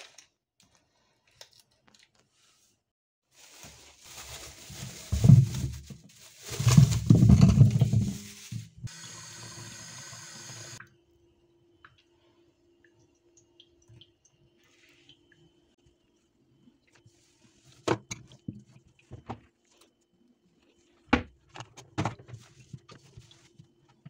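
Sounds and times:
apples thudding in colander: 3.6 - 8.9
tap water running: 7.0 - 10.9.

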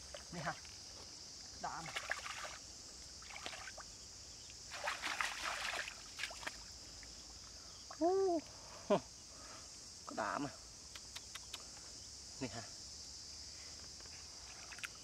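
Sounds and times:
hands splashing in muddy water: 1.8 - 2.6, 3.2 - 3.8, 4.7 - 6.7.

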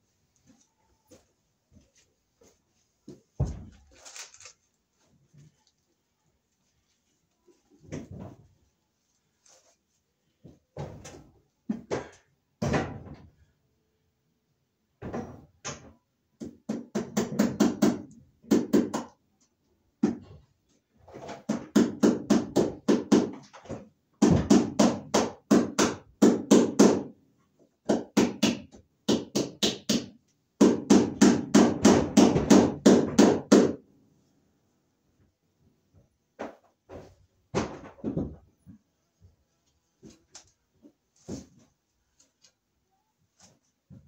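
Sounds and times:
hammer knocking staples into wood: 27.8 - 33.8.

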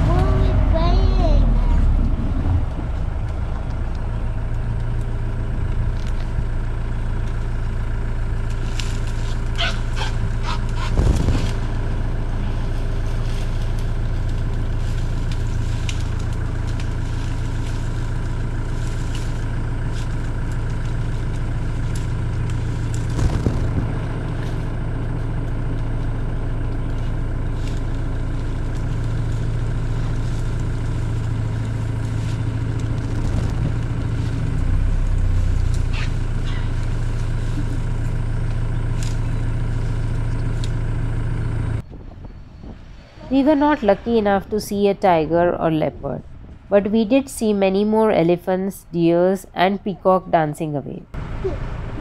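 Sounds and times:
vehicle engine idling: 0.0 - 52.0.

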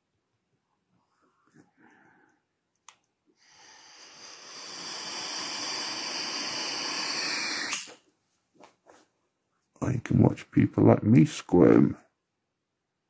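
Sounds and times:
air hissing: 3.4 - 8.0.

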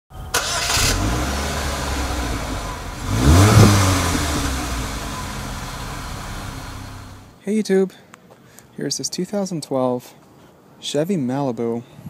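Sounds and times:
car engine starting and idling: 0.1 - 7.3
engine revving: 0.3 - 7.3.

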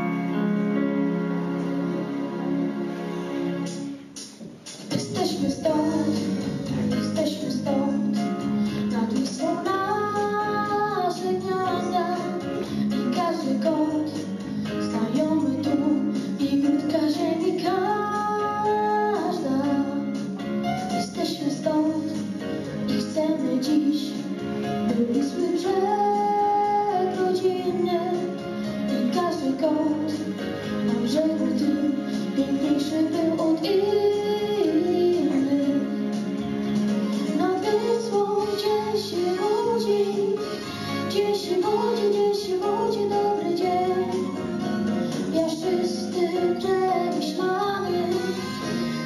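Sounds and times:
instrumental backing music: 0.0 - 49.0
child singing into microphone: 8.9 - 12.4, 14.8 - 20.1, 24.9 - 28.3, 30.9 - 36.0, 37.4 - 44.3, 45.3 - 49.0.

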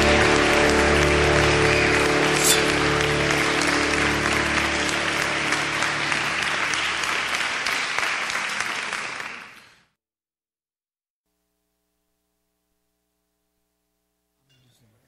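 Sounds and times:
backing music: 0.0 - 7.7
audience applauding: 0.0 - 9.9.

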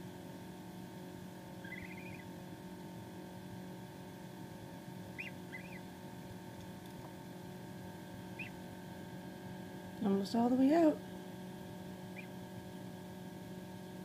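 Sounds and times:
incubator humming: 0.0 - 14.0
gosling peeping: 1.5 - 2.4, 5.1 - 5.9, 8.2 - 8.7, 12.1 - 12.4.

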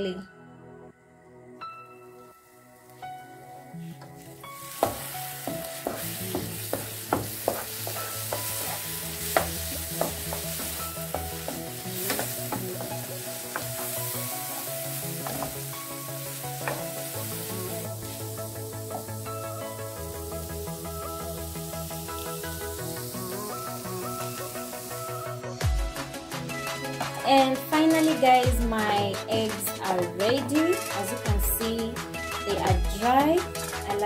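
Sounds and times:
eggs sizzling in frying pan: 2.4 - 34.0
wooden spatula scraping pan: 4.1 - 15.6.

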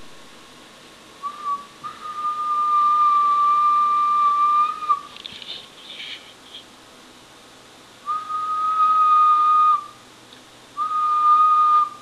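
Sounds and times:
person whistling steady note: 1.2 - 5.1, 8.0 - 10.0, 10.8 - 12.0
short scratchy noises: 5.1 - 6.7.

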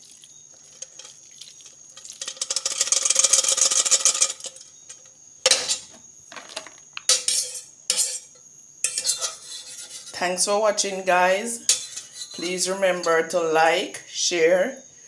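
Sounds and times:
metal clanking on metal: 2.0 - 10.0
sauce scraped out of metal pot: 7.2 - 10.2, 11.6 - 12.6.

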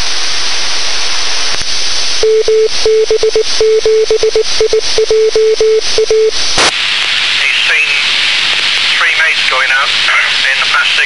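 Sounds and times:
radio receiver hiss: 0.0 - 3.7, 5.8 - 11.0
morse code beeps: 2.2 - 6.3.

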